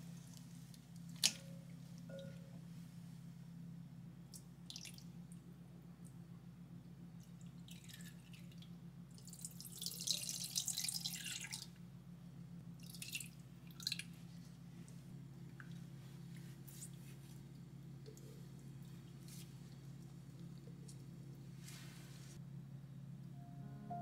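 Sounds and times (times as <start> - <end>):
liquid splashes and drips: 4.3 - 5.4, 7.2 - 11.8, 12.8 - 14.2
milk pouring into a bowl: 9.2 - 11.7.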